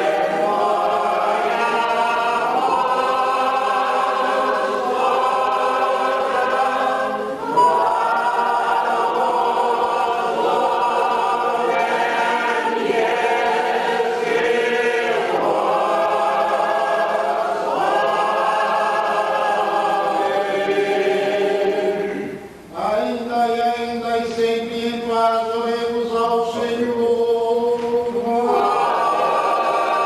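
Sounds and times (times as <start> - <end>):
choir singing a cappella hymn: 0.0 - 30.0.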